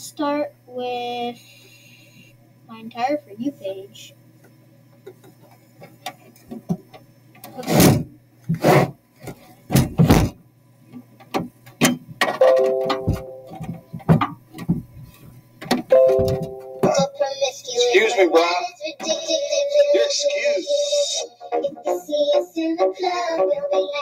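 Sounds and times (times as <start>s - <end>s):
low steady hum: 9.1s - 22.0s
loud thumps: 15.7s - 17.1s
short held musical chord: 15.9s - 16.9s.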